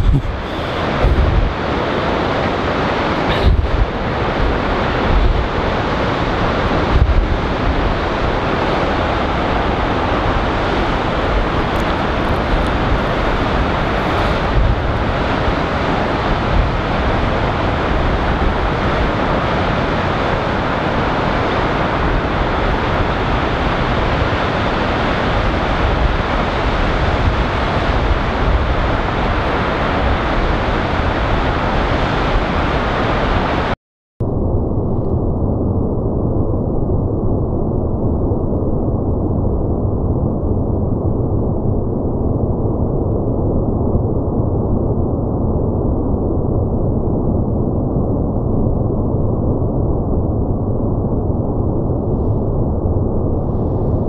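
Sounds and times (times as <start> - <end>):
waves washing against rocky shore: 0.0 - 33.7
wind buffeting microphone: 0.0 - 54.0.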